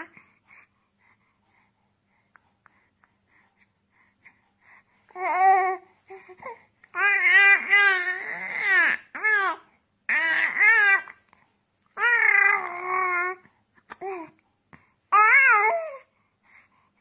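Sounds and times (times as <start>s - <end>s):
baby babbling and cooing: 5.1s - 11.2s, 11.9s - 14.4s, 15.1s - 16.1s.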